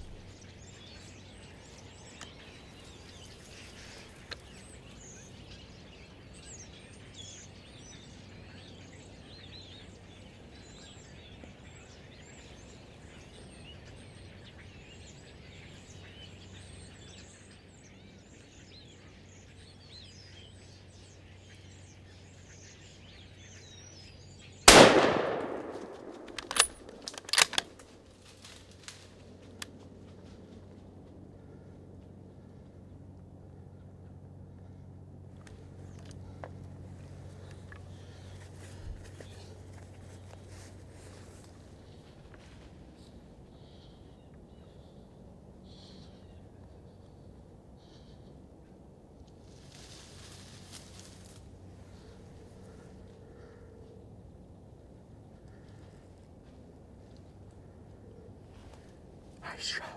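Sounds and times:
rifle shot with echo: 0:24.7 - 0:27.9
sharp clicks and knocks: 0:25.7 - 0:27.9.

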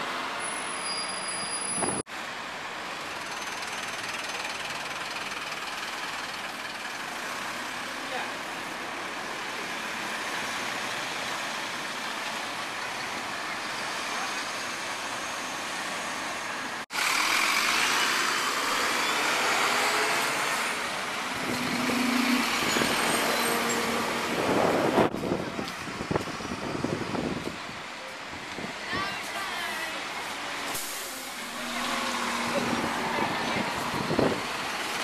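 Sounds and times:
bus engines with faint whines: 0:00.0 - 0:35.0
road traffic noise: 0:00.0 - 0:35.0.

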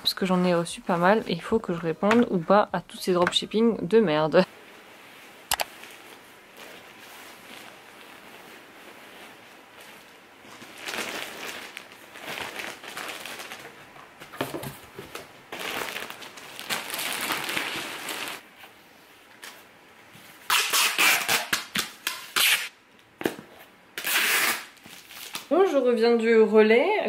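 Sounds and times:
clothing and plastic bag rustling: 0:00.0 - 0:02.6, 0:04.4 - 0:20.5
packing tape ripping off roll: 0:10.6 - 0:18.4, 0:20.4 - 0:23.4, 0:24.0 - 0:25.5.

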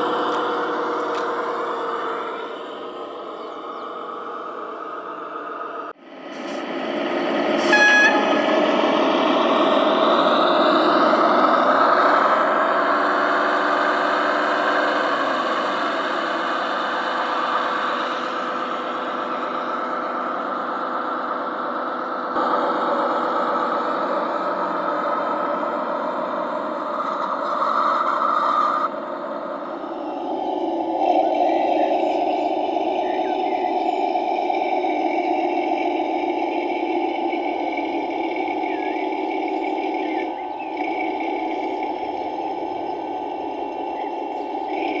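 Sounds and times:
model locomotive droning: 0:00.0 - 0:45.0.

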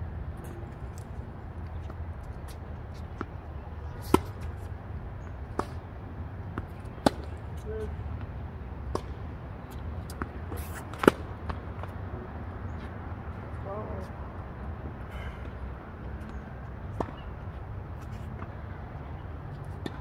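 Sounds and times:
racket striking ball: 0:04.0 - 0:04.7, 0:06.5 - 0:07.4, 0:08.9 - 0:09.2, 0:10.0 - 0:11.9.

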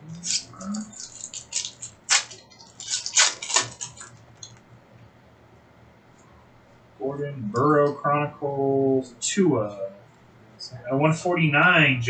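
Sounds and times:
trading cards rustling and snapping: 0:00.2 - 0:04.6.

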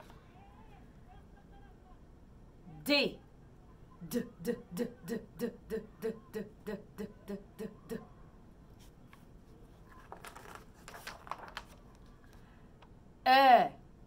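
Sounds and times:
woman repeating syllables: 0:04.0 - 0:08.2
book page rustling: 0:08.8 - 0:12.5.

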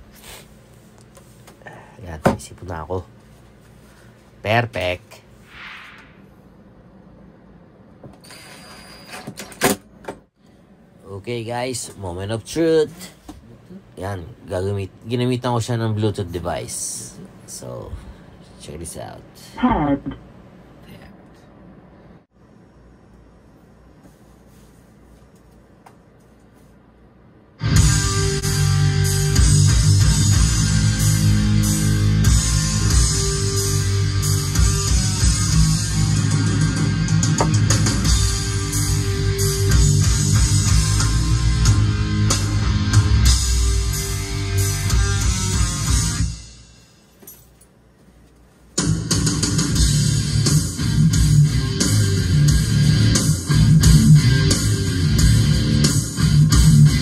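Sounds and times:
loud music with heavy bass: 0:27.6 - 0:46.4, 0:48.8 - 0:57.0.

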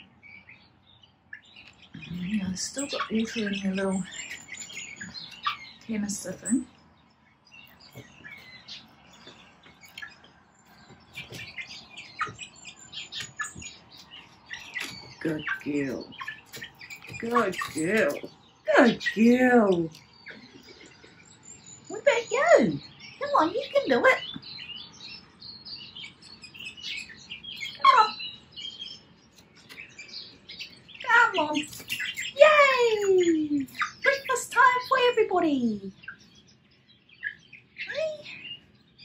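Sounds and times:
young hens cheeping: 0:00.0 - 0:39.0.

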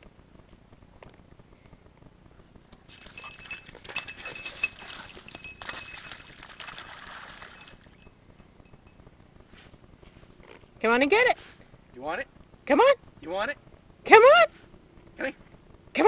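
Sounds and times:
crunching and splashing in icy water: 0:02.9 - 0:08.0
dog bell jingling: 0:02.9 - 0:09.0.

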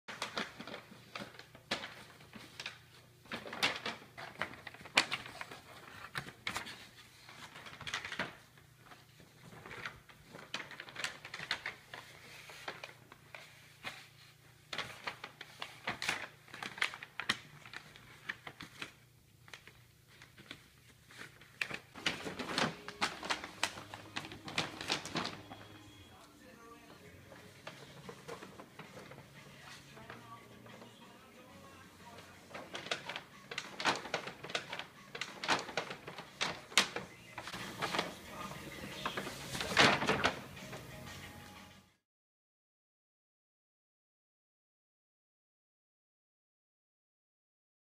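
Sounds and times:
paper bag crinkling: 0:00.1 - 0:41.6.

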